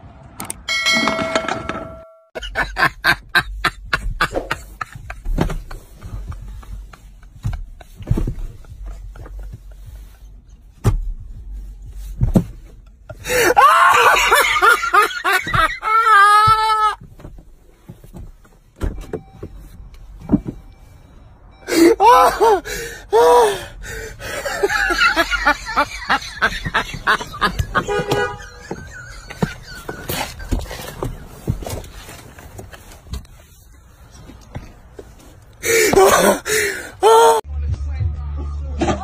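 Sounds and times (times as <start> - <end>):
man wailing: 13.3 - 14.7, 15.6 - 17.0, 21.7 - 23.6, 35.7 - 37.4
man gasping: 35.6 - 37.0.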